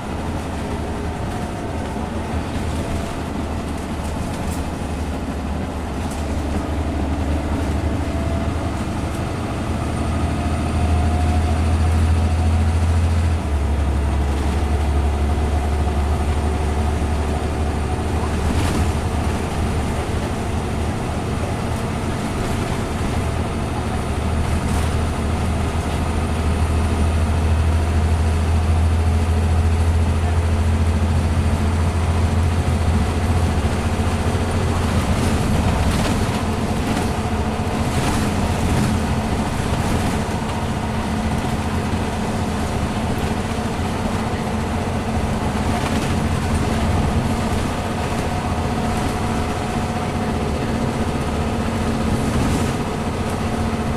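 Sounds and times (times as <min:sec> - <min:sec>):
bus engine droning: 0:00.0 - 0:53.9
road and tyre noise: 0:00.0 - 0:53.9.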